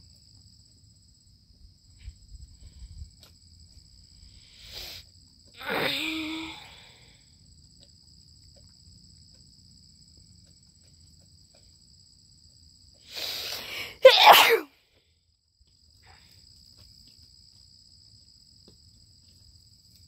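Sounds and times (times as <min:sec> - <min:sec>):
insect chirring: 0:00.0 - 0:14.0
person sneezing: 0:05.6 - 0:06.7, 0:13.1 - 0:14.7.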